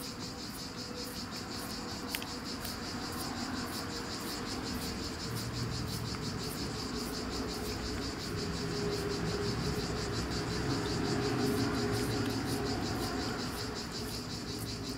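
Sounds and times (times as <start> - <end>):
insects chirping: 0.0 - 14.9.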